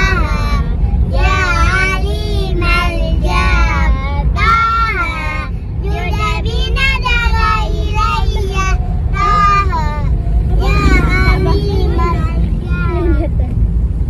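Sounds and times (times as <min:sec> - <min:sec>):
car cabin rumble: 0:00.0 - 0:14.0
children singing: 0:10.5 - 0:12.5.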